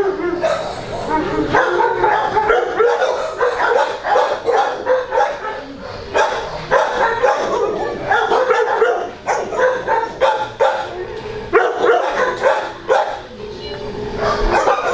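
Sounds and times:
dogs barking and yipping: 0.0s - 13.4s, 14.0s - 14.9s.

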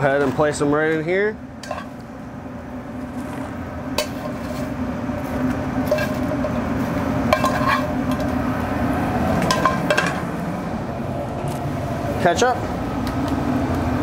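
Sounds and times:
steady low hum: 0.0s - 14.0s
metal tongs clinking on pan: 1.6s - 1.9s, 7.3s - 8.3s.

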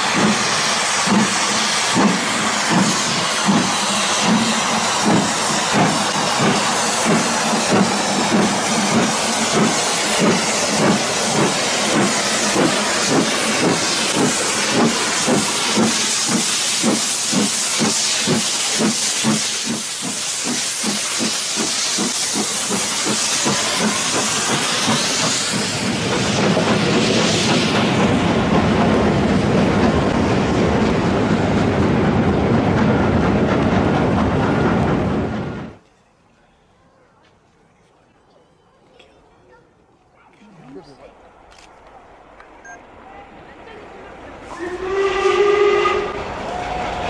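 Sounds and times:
steam hissing: 0.0s - 29.8s, 44.3s - 47.0s
steam locomotive chuffing: 0.0s - 35.8s, 40.7s - 47.0s
train rolling: 0.0s - 47.0s.

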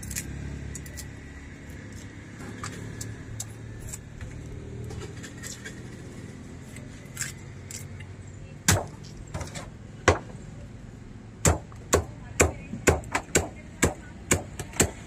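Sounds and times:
machete chopping into wood block: 8.7s - 10.3s, 11.5s - 15.0s.

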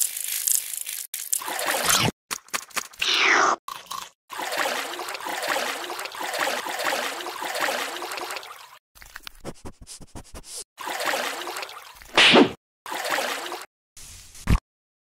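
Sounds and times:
water trickling and gurgling: 3.7s - 9.4s.

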